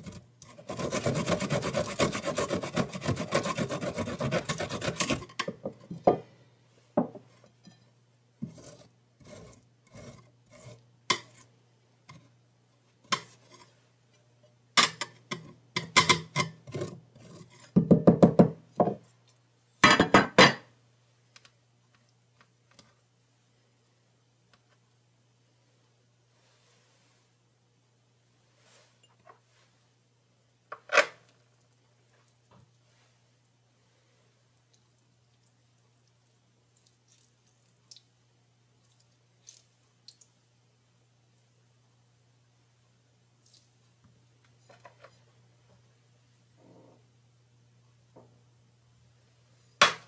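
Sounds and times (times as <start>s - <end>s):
ginger rasping on metal grater: 0.0s - 5.3s.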